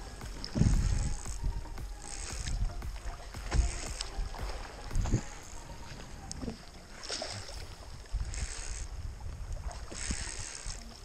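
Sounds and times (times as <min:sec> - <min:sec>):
water splashing against hull: 0:00.0 - 0:11.0
wind rumble on microphone: 0:00.0 - 0:11.0.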